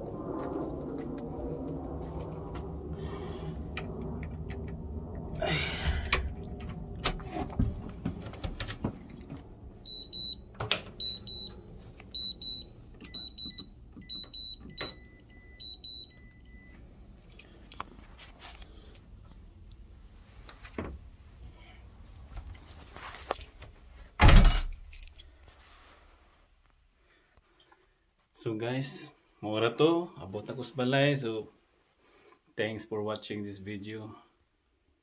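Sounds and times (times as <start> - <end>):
keypad beeps: 9.9 - 10.4, 11.0 - 11.5, 12.1 - 16.8.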